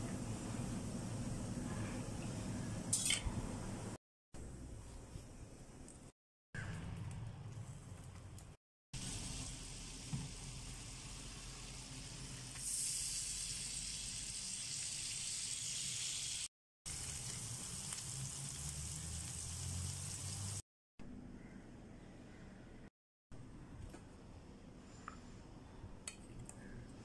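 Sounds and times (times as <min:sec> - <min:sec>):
patty sizzling in oil: 0:09.0 - 0:20.6.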